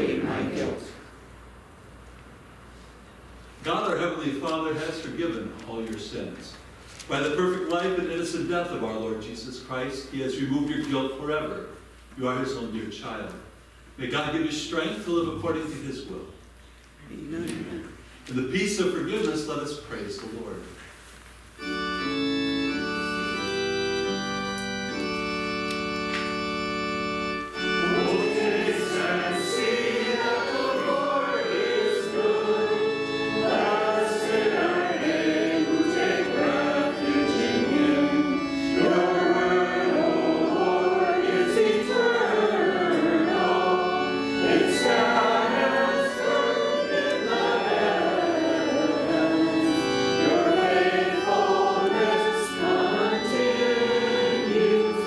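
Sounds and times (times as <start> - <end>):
church organ chords: 0.0 - 1.2, 7.2 - 16.4, 21.4 - 55.0
congregation singing a hymn: 0.0 - 1.2, 21.6 - 55.0.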